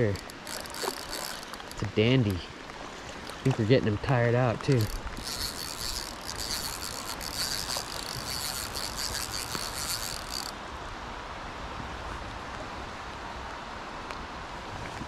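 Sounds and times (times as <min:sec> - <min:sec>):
fishing reel clicking: 0:00.0 - 0:02.4, 0:04.6 - 0:10.6
river water hiss: 0:00.0 - 0:14.8
wind: 0:00.0 - 0:15.0.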